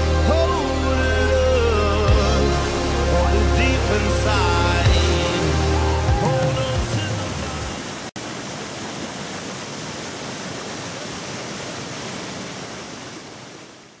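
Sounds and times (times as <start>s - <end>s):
background music: 0.0s - 7.9s
waterfall rushing: 0.0s - 14.0s.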